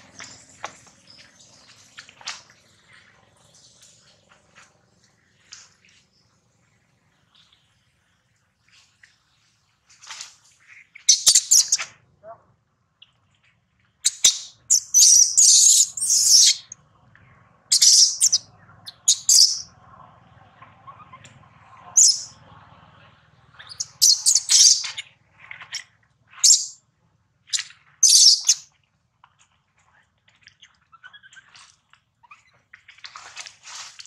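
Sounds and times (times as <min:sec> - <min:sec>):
baby monkey screaming: 0:14.2 - 0:16.7, 0:23.6 - 0:24.8.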